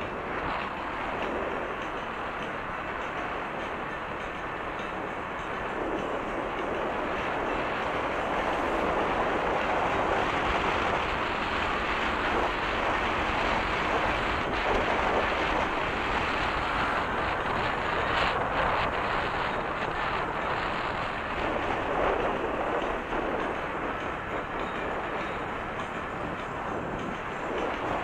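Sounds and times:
road noise: 0.0 - 28.0
wind rushing over microphone: 0.0 - 28.0.

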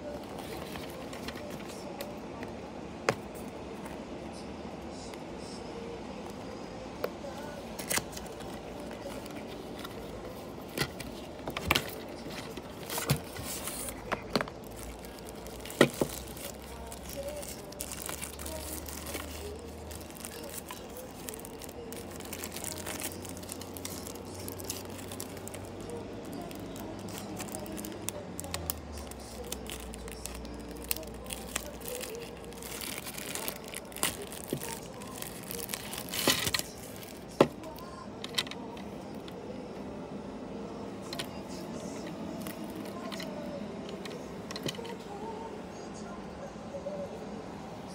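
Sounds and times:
crinkly plastic bag pulled open: 11.1 - 37.9.

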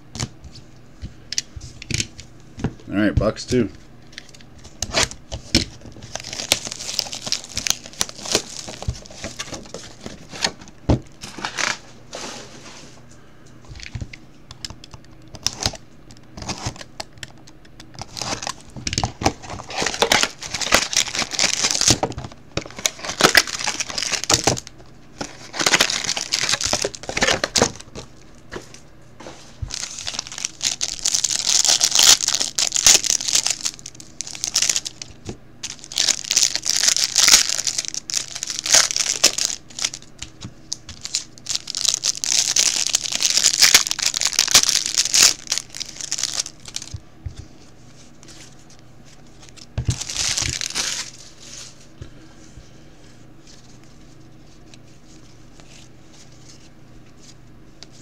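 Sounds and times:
plastic wrapping crinkling and tearing: 4.1 - 10.6, 17.9 - 28.8, 29.6 - 47.0, 48.0 - 51.9.

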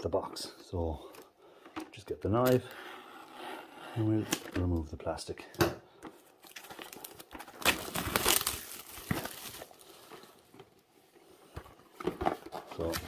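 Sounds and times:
plastic wrapping crinkling and tearing: 6.2 - 10.5, 12.5 - 13.0.

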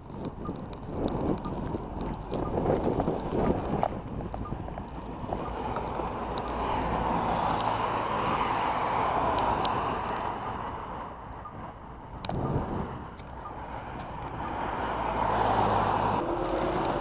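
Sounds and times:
wind on microphone: 0.0 - 17.0
faint clicks: 0.1 - 6.6.

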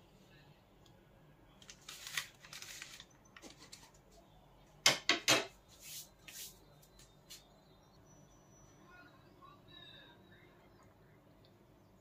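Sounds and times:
loud paper crackles: 1.6 - 3.9
paper wrapping rustling: 1.6 - 4.0.

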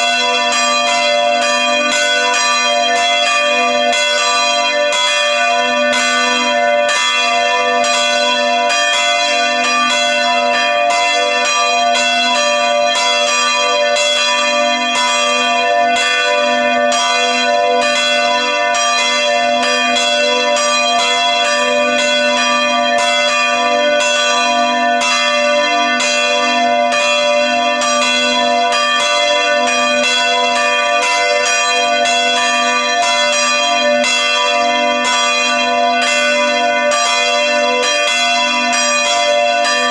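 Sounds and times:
church bells ringing: 0.0 - 39.9.

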